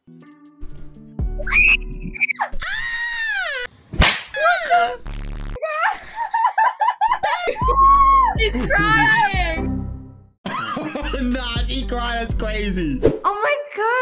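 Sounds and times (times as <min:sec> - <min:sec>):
sharp crack: 0:04.0 - 0:04.4.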